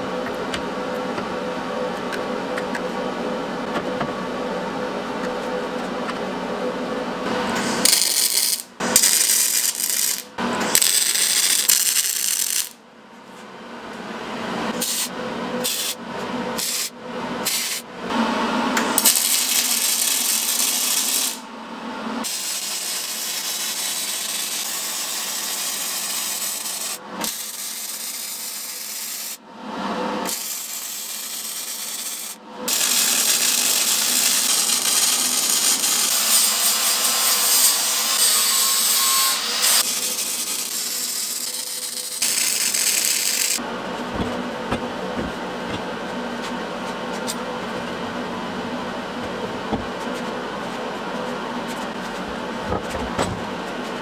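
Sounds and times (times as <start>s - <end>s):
welding arc crackling and sizzling: 7.8s - 12.8s, 19.0s - 21.4s, 22.2s - 29.4s, 30.3s - 44.2s.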